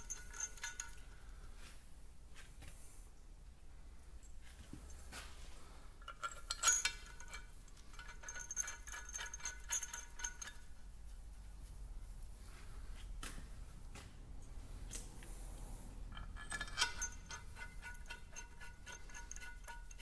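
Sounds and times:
metal bolts clinking and rattling: 0.0 - 1.2, 6.0 - 11.3, 16.1 - 20.0.

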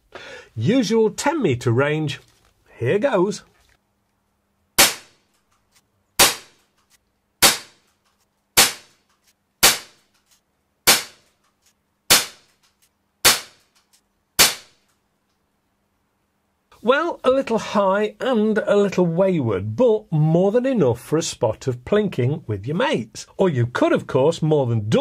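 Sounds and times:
air pistol shots: 4.8 - 5.3, 6.2 - 6.7, 7.4 - 7.9, 8.6 - 9.0, 9.6 - 10.1, 10.8 - 11.3, 12.1 - 12.6, 13.2 - 13.8, 14.4 - 14.8.

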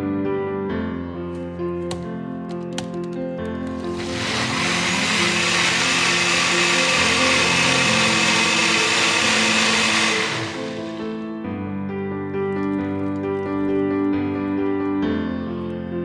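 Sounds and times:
blender motor running: 3.7 - 11.2.

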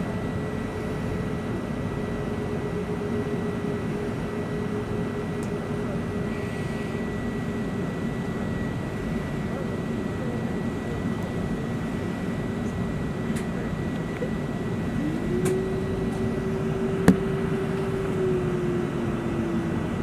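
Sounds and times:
aircraft cabin hum: 14.8 - 19.1.

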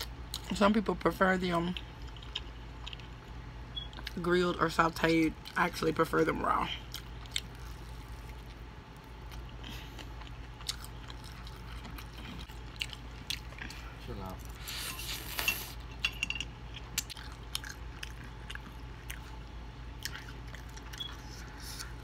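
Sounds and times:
chewing and lip-smacking: 1.6 - 4.2, 6.7 - 15.4, 16.7 - 22.0.

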